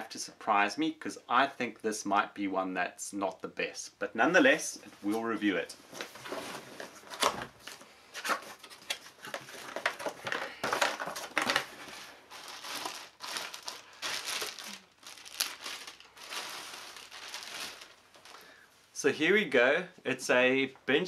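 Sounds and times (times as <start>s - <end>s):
cardboard box rustling: 6.0s - 17.9s
shredded paper crinkling: 6.0s - 18.5s
plastic bag crinkling: 6.0s - 18.6s.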